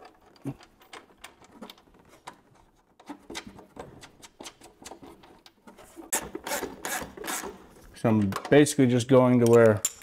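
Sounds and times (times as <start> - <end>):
metal hardware clicks and scrapes: 9.4 - 10.0.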